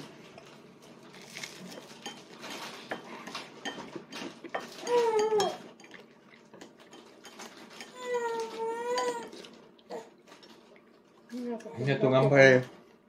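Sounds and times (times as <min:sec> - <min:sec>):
dishes and cutlery clinking: 0:01.4 - 0:10.7.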